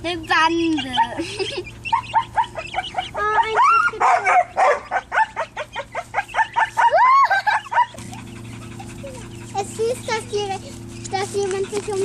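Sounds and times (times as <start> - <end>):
dog yipping and whining: 0.7 - 10.2.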